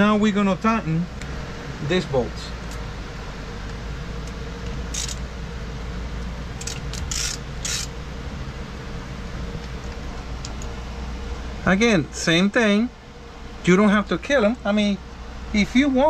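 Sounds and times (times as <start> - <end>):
steady background hum: 0.0 - 16.0
wrench clicking rasps: 4.9 - 5.2, 6.6 - 7.9.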